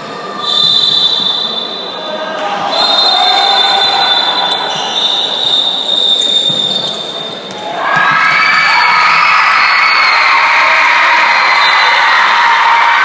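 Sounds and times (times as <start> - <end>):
crowd cheering and chanting: 1.9 - 5.0, 7.6 - 13.0
ball bouncing on hall floor: 6.3 - 9.3.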